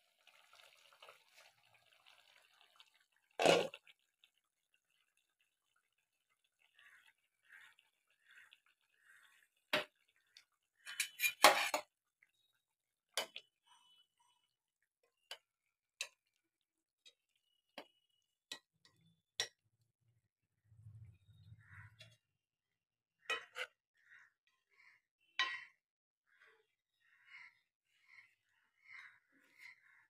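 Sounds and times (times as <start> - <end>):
curry bubbling: 0.0 - 19.2
metal spoon scraping cooking pot: 10.8 - 11.9.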